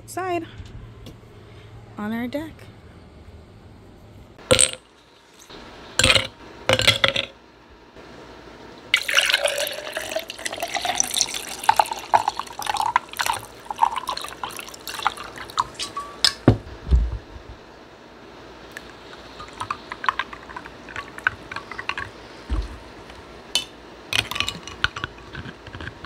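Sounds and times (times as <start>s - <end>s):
fizzy drink pouring over ice: 9.0s - 15.9s
bubbles crackling: 9.0s - 16.0s, 18.7s - 22.8s.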